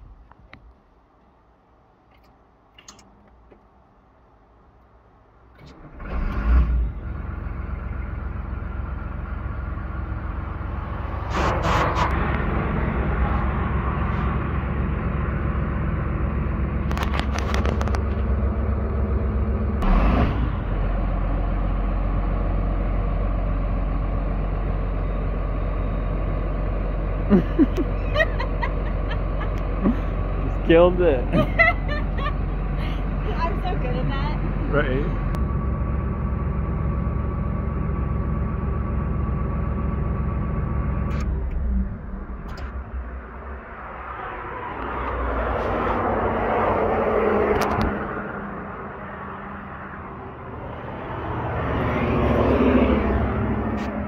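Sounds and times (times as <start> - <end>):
diesel engine starting and running: 0.0 - 54.0.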